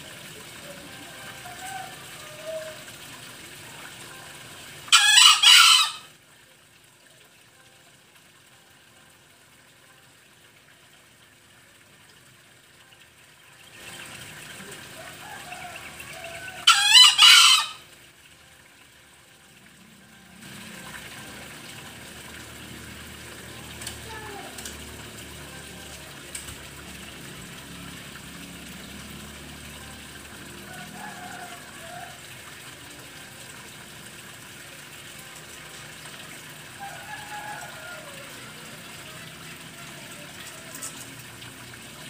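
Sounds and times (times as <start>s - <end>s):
junglefowl crowing: 1.2s - 2.9s, 4.9s - 6.1s, 14.8s - 17.9s, 30.6s - 32.3s, 36.8s - 38.7s.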